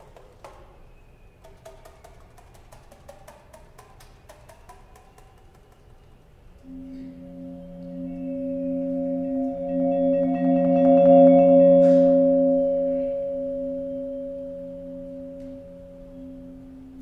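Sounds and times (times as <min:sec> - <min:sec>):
chamber ensemble holding long tones: 0:06.6 - 0:17.0.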